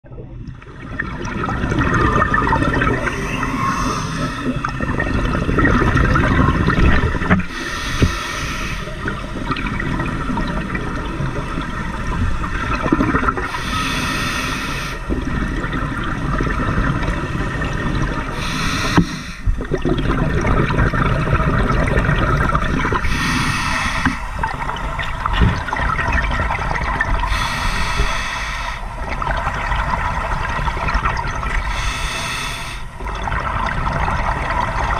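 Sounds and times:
exhaled bubbles gushing: 0.0 - 13.8, 15.0 - 28.1, 28.8 - 31.8, 32.8 - 34.9
scuba regulator breathing: 3.0 - 4.9, 7.4 - 9.2, 13.4 - 15.1, 18.3 - 19.6, 22.9 - 24.9, 27.3 - 29.0, 31.6 - 33.0.

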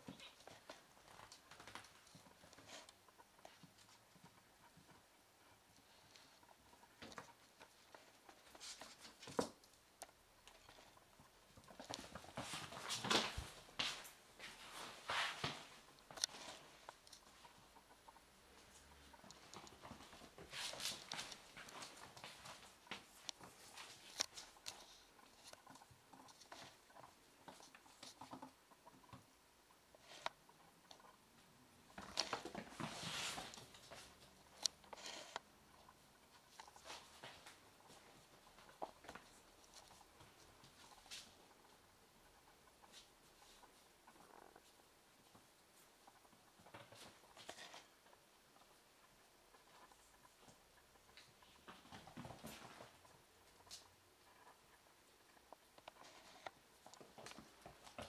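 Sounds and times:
kitten paws pattering on floor: 10.6 - 29.2.

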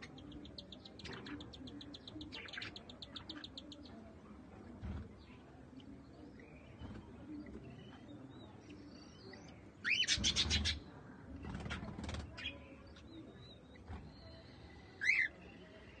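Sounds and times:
cockatiels chirping: 15.0 - 15.3.

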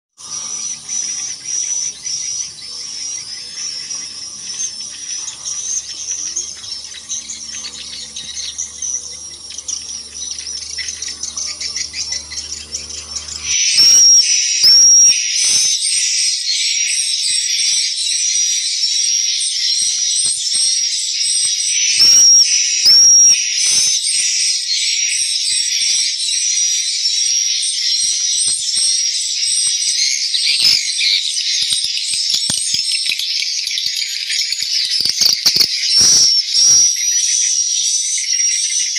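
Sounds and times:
faint high chirps: 0.2 - 15.8, 21.8 - 24.0, 33.8 - 37.3.

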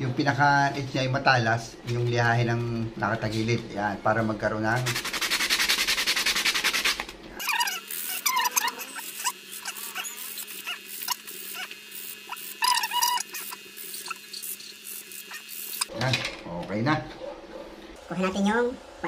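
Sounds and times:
wood strip sanding: 4.8 - 7.0
high squeaks and whines: 7.4 - 15.9.

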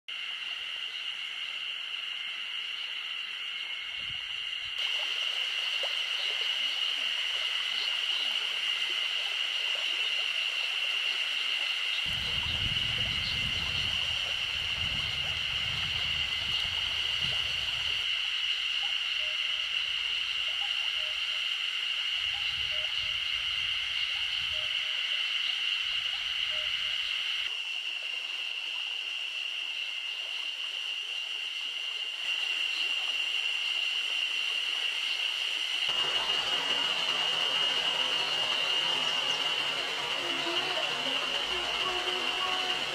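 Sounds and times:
cicadas buzzing: 0.1 - 42.9.

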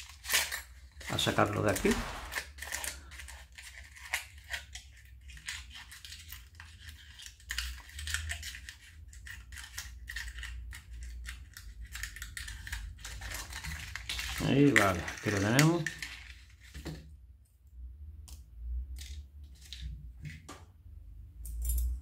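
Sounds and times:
metal pieces clinking and scraping: 12.4 - 16.7.

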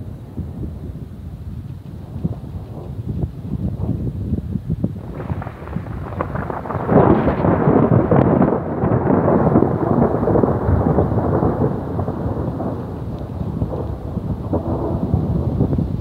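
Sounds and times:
thunder rumbling: 0.0 - 16.0.

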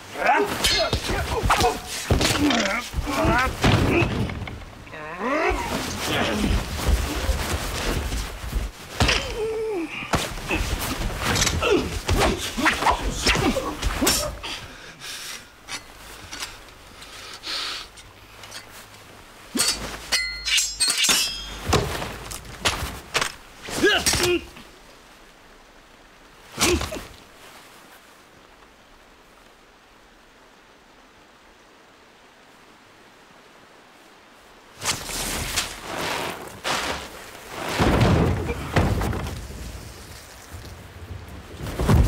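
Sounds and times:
men grunting and crying out: 0.0 - 7.5, 9.0 - 14.7
sword blades striking and scraping: 0.4 - 1.8, 19.5 - 21.9
heavy thuds and breaking crashes: 0.6 - 4.8, 36.7 - 40.0, 41.6 - 42.0
metallic ringing clash: 19.6 - 21.6.

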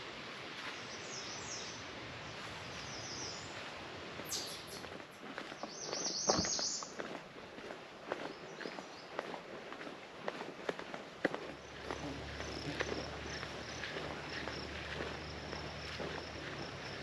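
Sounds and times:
songbirds chirping: 0.1 - 17.0
footsteps on dirt trail: 0.3 - 1.4, 2.3 - 17.0
bird trill: 4.3 - 4.8, 5.6 - 6.9
bird whistle: 4.3 - 4.8.

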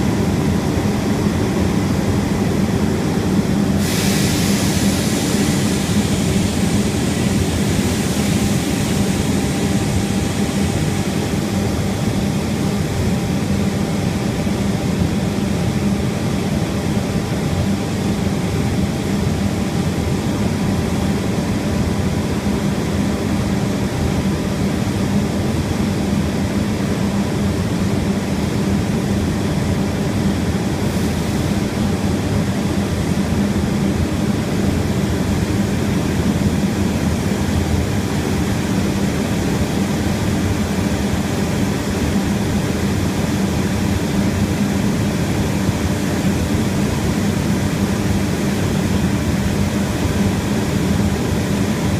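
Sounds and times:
low mechanical drone: 0.0 - 51.9.

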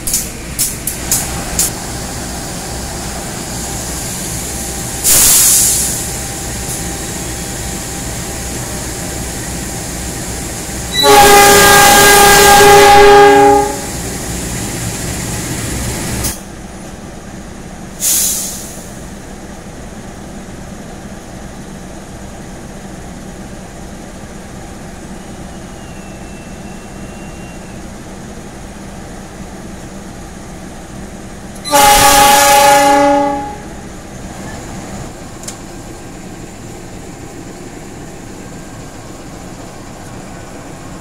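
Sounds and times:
short air hiss: 3.4 - 6.8, 18.0 - 19.0
locomotive air horn blast: 10.9 - 13.9, 31.6 - 33.7.

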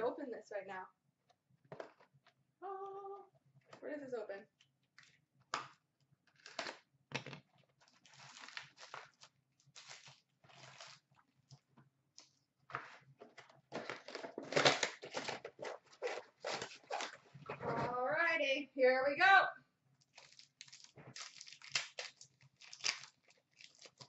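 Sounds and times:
card wrappers tearing and rustling: 7.8 - 11.1, 13.8 - 17.2, 20.1 - 24.0.

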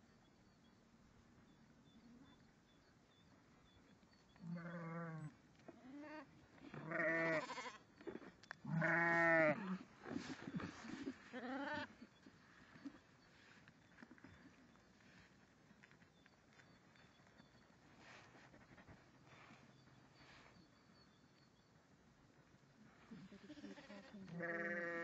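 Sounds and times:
sheep bleating: 6.8 - 7.8, 8.7 - 9.8, 23.2 - 25.0.

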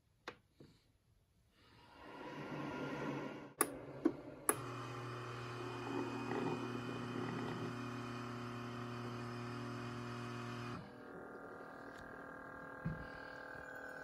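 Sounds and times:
coffee maker click: 3.6 - 5.2
coffee maker humming: 3.6 - 14.0.

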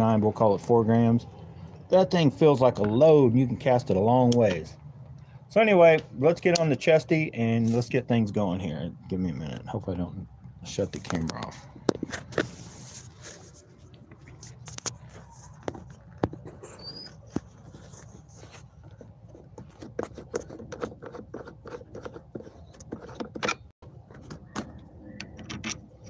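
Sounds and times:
brief high squeak: 16.5 - 17.4.

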